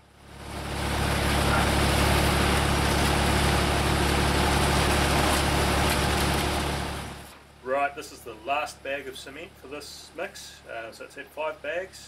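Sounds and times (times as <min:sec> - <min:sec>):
tractor engine running under load: 0:00.0 - 0:07.3
mixer paddles churning wet concrete: 0:00.2 - 0:07.4.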